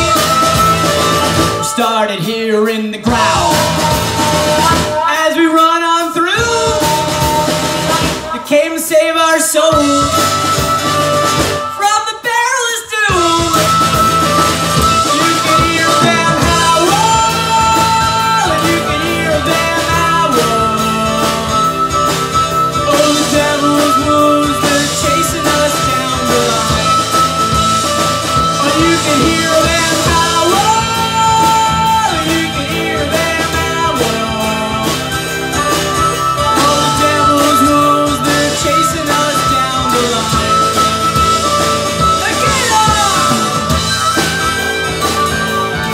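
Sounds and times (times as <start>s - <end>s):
electric bass: 0.0s - 2.0s, 3.0s - 8.4s, 9.6s - 11.7s, 13.2s - 45.9s
harmonica long held notes: 0.0s - 2.2s, 3.1s - 8.4s, 9.6s - 12.2s, 13.2s - 45.9s
drum kit: 0.0s - 45.9s
strummed acoustic guitar: 13.2s - 45.9s.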